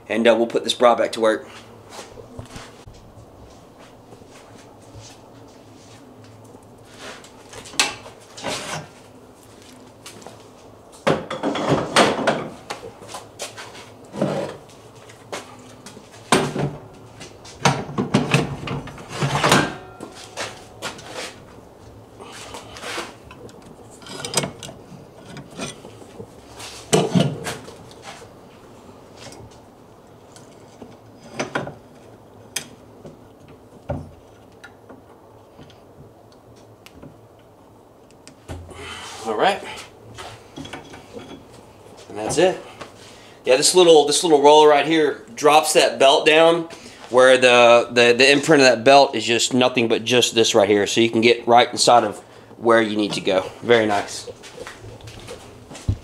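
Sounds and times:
steel parts clanking and scraping: 22.8s - 26.2s.

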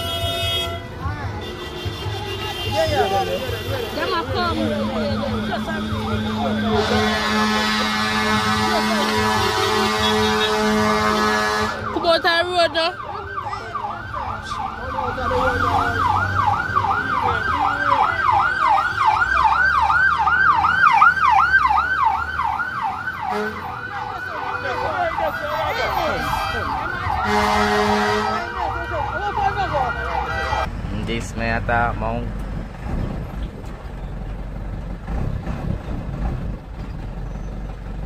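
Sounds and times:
steady horn tone: 0.0s - 12.2s, 23.2s - 30.8s
fire engine siren yelping: 4.7s - 30.7s.

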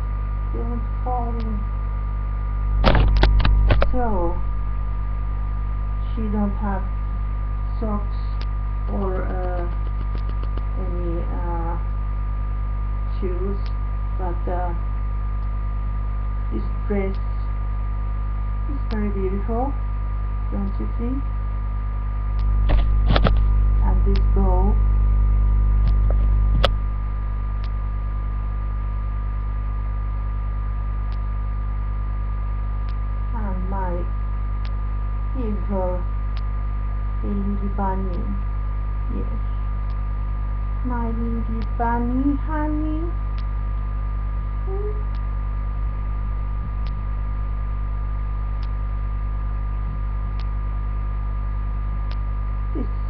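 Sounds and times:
electrical mains hum: 0.0s - 53.0s
sharp click: 2.8s - 4.0s, 8.4s - 10.7s, 22.4s - 23.5s.

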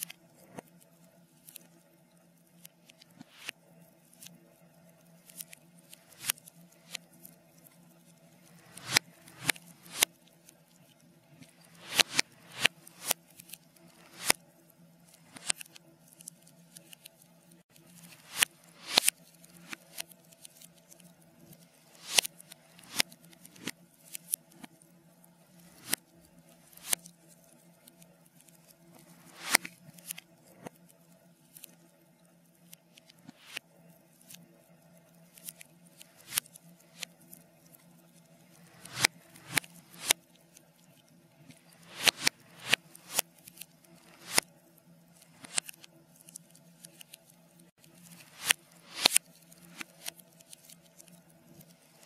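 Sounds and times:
faint steady hum: 0.0s - 52.0s
reversed fire crackling: 5.4s - 10.1s, 11.3s - 14.4s, 17.9s - 20.1s, 38.5s - 40.2s, 41.5s - 43.2s, 43.8s - 44.4s.

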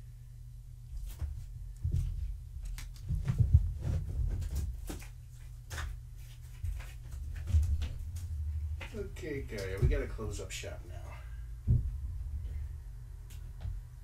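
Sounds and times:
cat thumps and scuffles: 3.0s - 5.0s.

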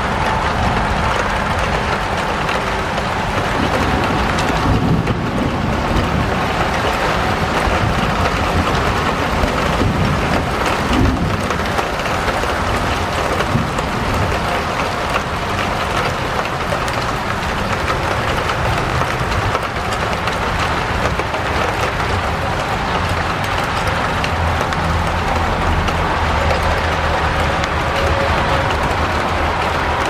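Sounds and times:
steady rainfall: 0.0s - 30.0s.

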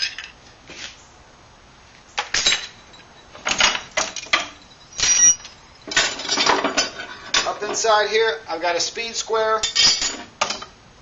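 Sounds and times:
metallic ring: 2.4s - 7.5s
metal hand tools clattering: 2.4s - 8.0s, 9.6s - 10.7s.

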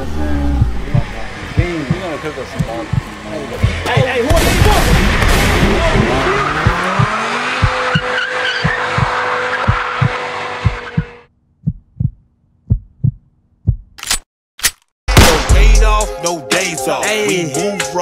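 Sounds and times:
car engine revving: 0.0s - 11.3s
heartbeat thumps: 0.5s - 14.0s
tyres squealing: 6.0s - 11.1s.

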